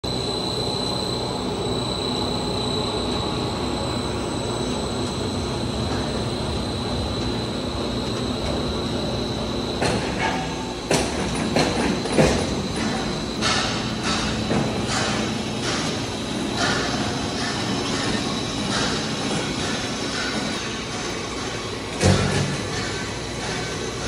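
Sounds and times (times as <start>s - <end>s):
factory machinery rumbling: 0.0s - 24.0s
sharp knocks and clatters: 9.8s - 23.8s.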